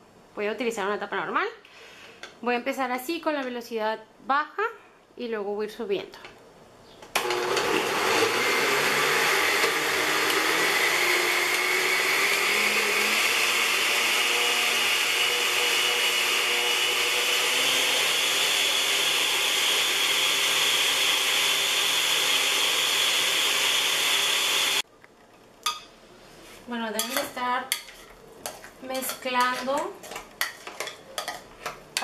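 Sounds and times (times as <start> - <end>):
blender motor whine: 7.2 - 24.8.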